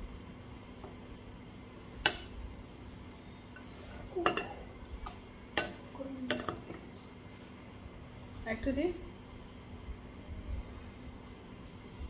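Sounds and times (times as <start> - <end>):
metal spoon clinking on ceramic: 5.6 - 6.6.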